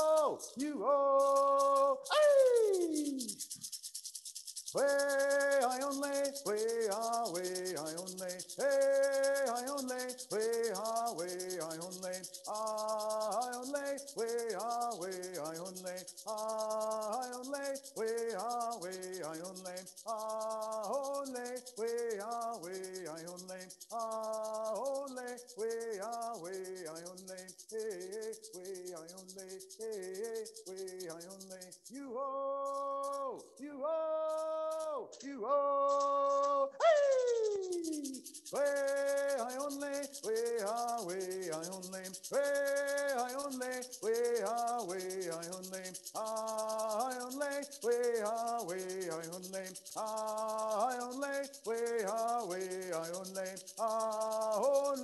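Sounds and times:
man singing: 0.0 - 3.4, 4.8 - 55.0
hand rattle shaking: 0.0 - 55.0.

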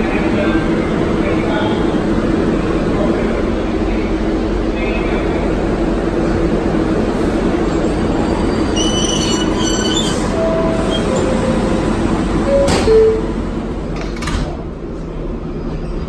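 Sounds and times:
subway train rumble and hum: 0.0 - 16.0
short squeaky tones: 8.8 - 11.5
train doors closing knocks: 10.7 - 14.6.

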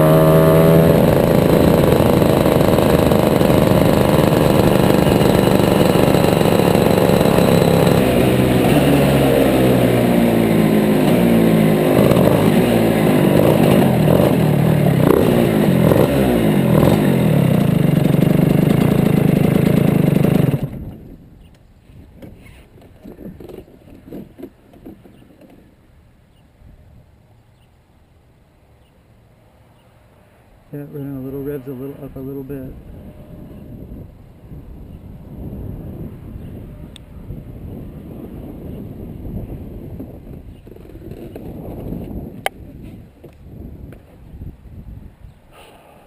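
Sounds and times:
kart engine revving: 0.0 - 21.0.

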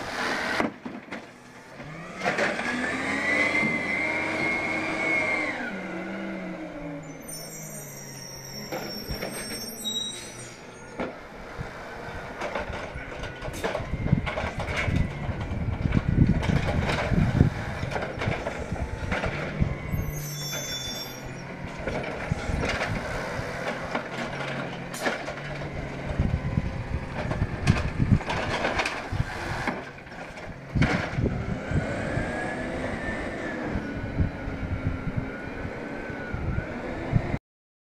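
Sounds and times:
clanks from mechanical arm and carts: 0.2 - 3.8, 8.5 - 31.9
garbage truck engine running: 10.6 - 36.6.

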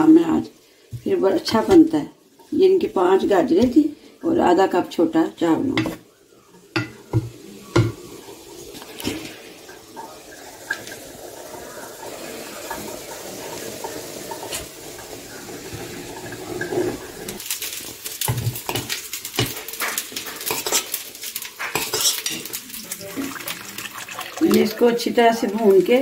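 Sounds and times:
carrots sizzling in butter: 5.3 - 26.0
spoon stirring and scraping: 5.8 - 9.4, 15.7 - 23.4
spoon clinking against pot: 20.2 - 21.0, 21.6 - 22.6.

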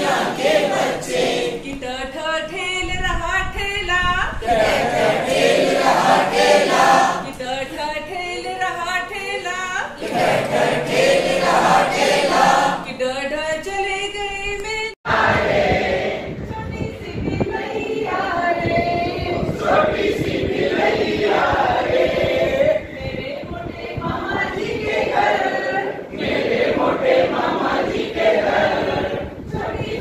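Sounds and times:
group singing in chorus: 0.0 - 2.2, 4.3 - 7.5, 9.9 - 13.0, 15.1 - 16.5, 17.2 - 30.0.

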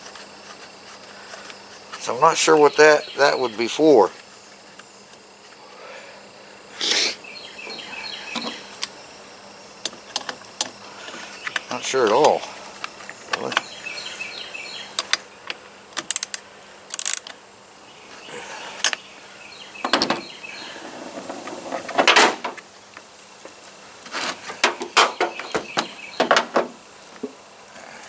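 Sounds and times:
tool knocks and clatter: 19.8 - 20.3, 24.6 - 26.8.

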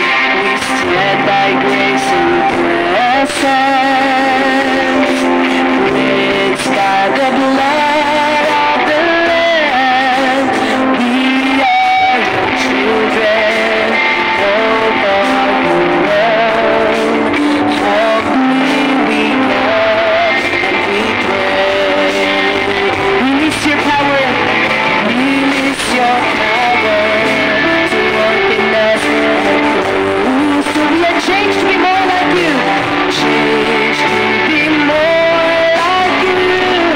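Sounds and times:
bass guitar: 0.0 - 36.9
electric guitar: 0.0 - 36.9
keyboard: 0.0 - 36.9
people singing: 0.0 - 36.9.

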